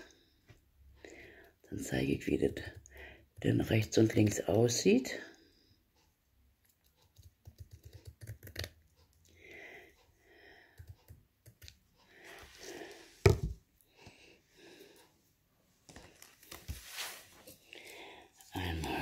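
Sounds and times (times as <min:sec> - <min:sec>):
soft rustling of strip: 0:15.0 - 0:19.0.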